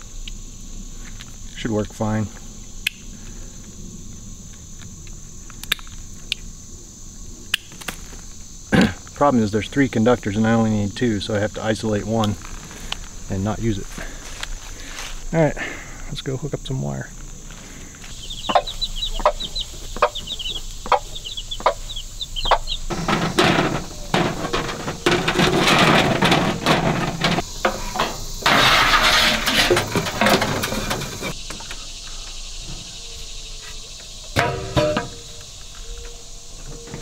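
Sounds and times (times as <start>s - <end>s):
footsteps on forest litter: 13.8s - 15.3s
wire rustling and scraping: 22.4s - 31.4s.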